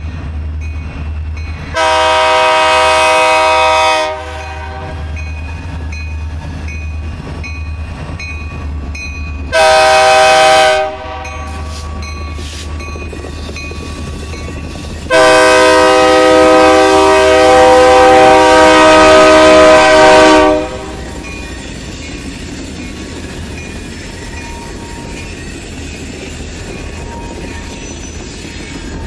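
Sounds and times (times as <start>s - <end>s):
low rumble of train engines: 0.0s - 29.0s
locomotive air horn blasts: 1.8s - 5.1s, 9.5s - 12.0s, 15.1s - 21.2s.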